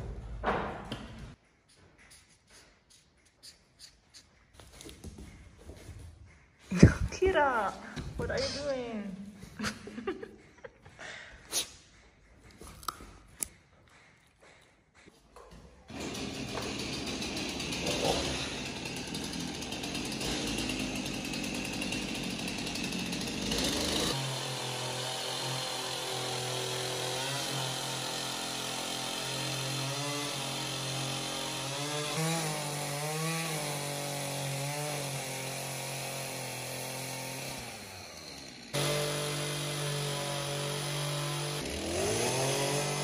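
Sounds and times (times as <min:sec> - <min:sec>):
chainsaw cutting log: 0:15.9 - 0:43.0.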